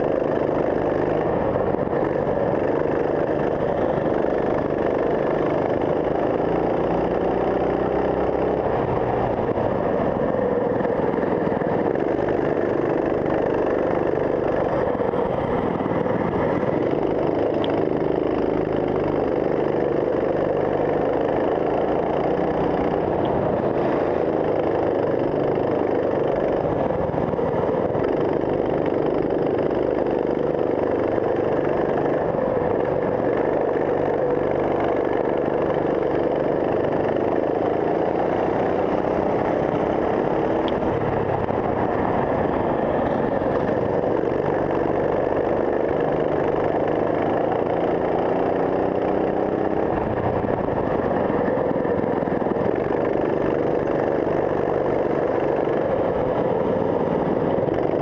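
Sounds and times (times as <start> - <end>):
racing kart engine: 0.0 - 58.0.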